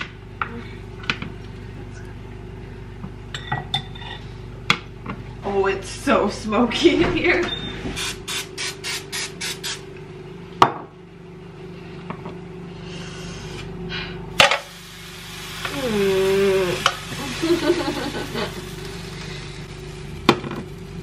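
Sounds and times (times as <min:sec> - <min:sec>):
cooking spray hissing: 0:08.0 - 0:09.9, 0:14.4 - 0:21.0.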